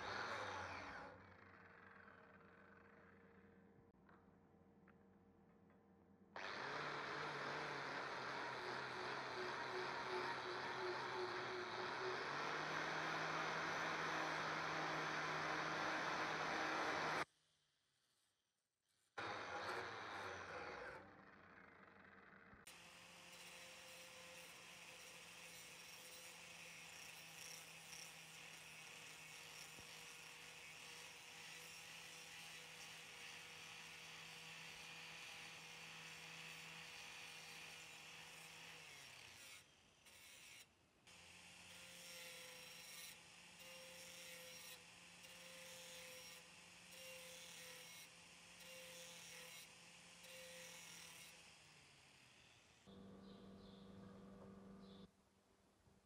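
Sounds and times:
angle grinder grinding metal: 6.4s - 17.2s, 22.7s - 40.7s, 41.5s - 51.5s.

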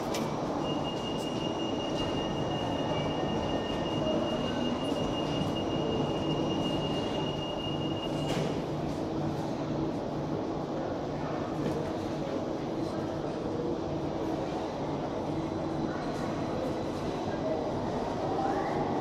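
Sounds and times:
train high-pitched whine: 0.0s - 8.7s.

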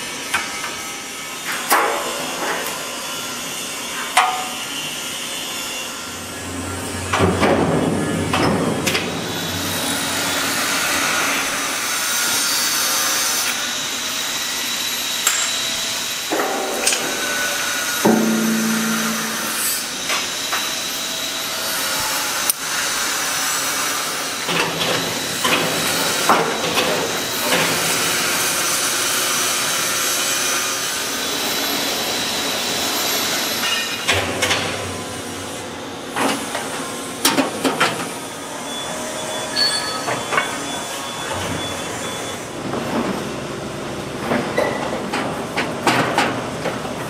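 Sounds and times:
machinery hiss and whir: 0.0s - 47.0s
sharp metallic clanks: 18.0s - 20.6s.

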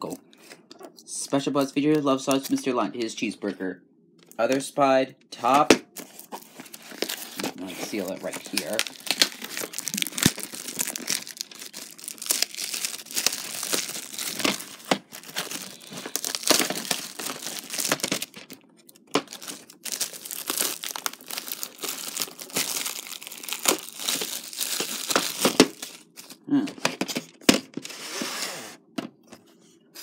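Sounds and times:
plastic shrink wrap tearing: 6.0s - 26.4s.

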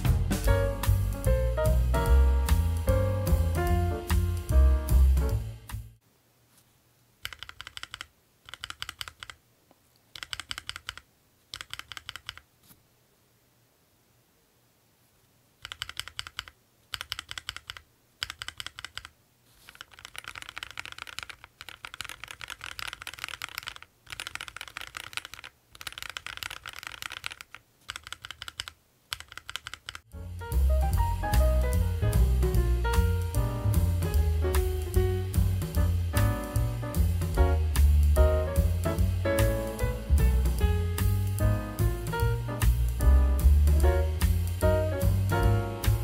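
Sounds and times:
mechanical keyboard typing: 7.2s - 9.4s, 10.1s - 12.5s, 15.6s - 30.1s.

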